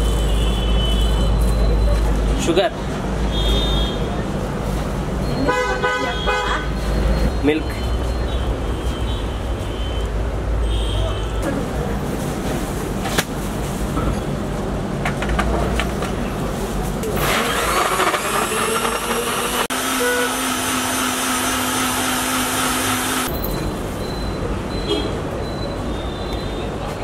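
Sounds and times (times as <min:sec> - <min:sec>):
blender motor whining: 0:17.2 - 0:23.3.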